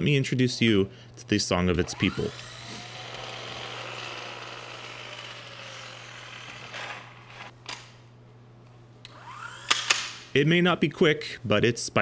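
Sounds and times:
impact wrench whirring: 1.7 - 7.6, 9.0 - 10.3.

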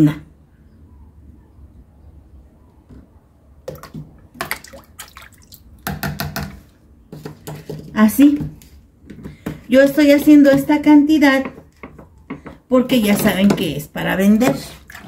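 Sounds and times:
water splashing in a plastic basin: 3.6 - 5.8, 13.2 - 15.0.

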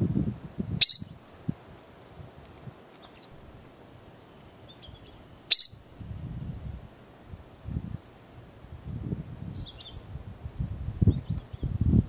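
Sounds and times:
ground squirrel high calls: 4.6 - 5.8.

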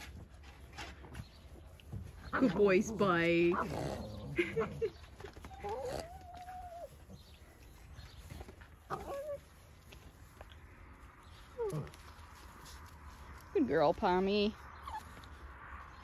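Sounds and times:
dog whining: 5.5 - 7.0.

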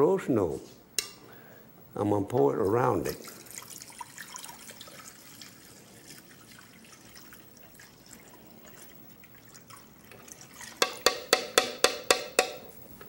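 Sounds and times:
liquid trickling into pot: 3.1 - 11.2.

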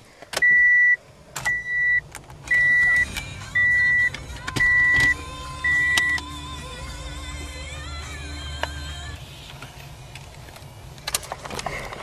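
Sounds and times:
car warning chime: 0.4 - 6.3.

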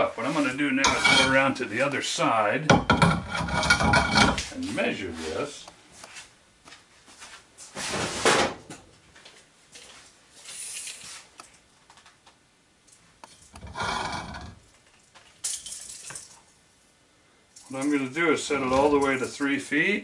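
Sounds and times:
tools rustling and clattering: 0.8 - 1.5, 2.7 - 4.7, 17.5 - 19.4.

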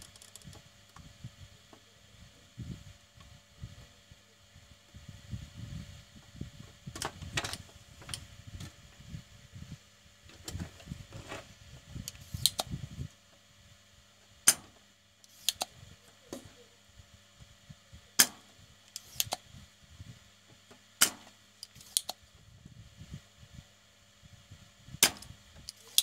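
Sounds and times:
rumbling handling noise: 0.0 - 4.0, 4.9 - 13.5
faint steady hum: 0.0 - 26.0
tools clicking on circuit board: 12.1 - 12.7, 15.2 - 15.7, 18.2 - 19.4, 21.0 - 22.2, 25.0 - 26.0.

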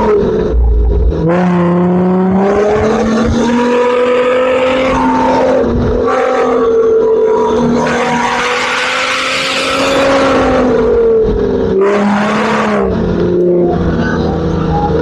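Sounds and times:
engine revving hard: 1.2 - 13.9.

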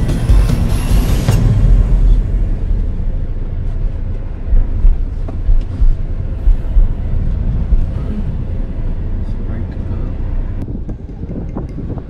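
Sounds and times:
car cabin low rumble: 0.0 - 12.0
dull thumps over bumps: 3.7 - 8.5.

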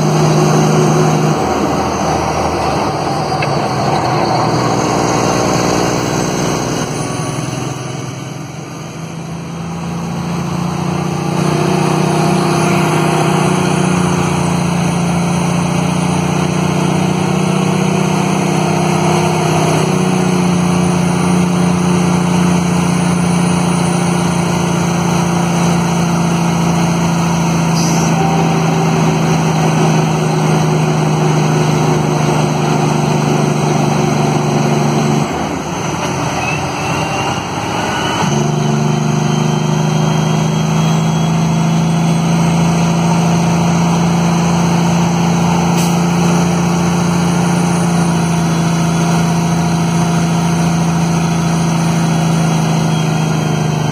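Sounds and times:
truck diesel engine braking: 0.0 - 53.9.

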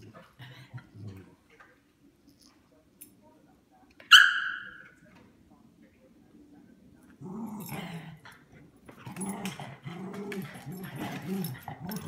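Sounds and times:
small dogs growling: 7.2 - 12.0.

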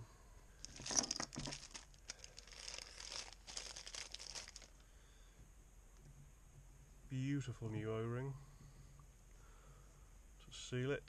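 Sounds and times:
plastic bag crinkling: 0.6 - 4.8.

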